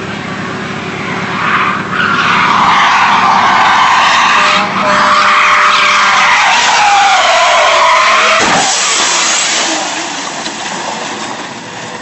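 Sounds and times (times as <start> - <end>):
car tyres squealing: 0.8 - 12.0
car crash: 6.3 - 12.0.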